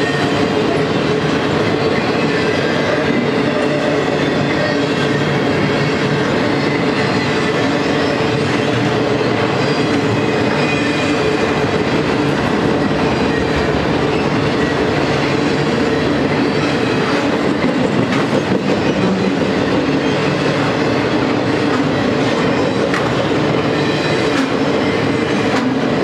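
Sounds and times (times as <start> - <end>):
train wheels rolling on rails: 0.0 - 26.0
wheels clacking over rail joints: 0.1 - 26.0.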